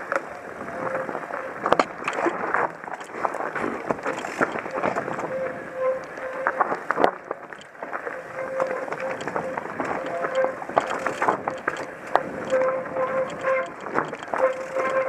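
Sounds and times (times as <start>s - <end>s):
bike rattling: 0.0s - 15.0s
tyres rolling over gravel: 0.0s - 15.0s
wind buffeting microphone: 0.0s - 15.0s
bike knocking on rocks: 1.6s - 5.3s, 6.5s - 15.0s.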